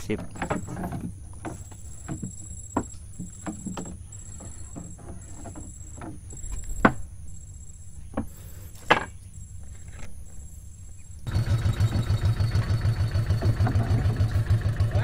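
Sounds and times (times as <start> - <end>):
small boat engine running: 11.3 - 15.0.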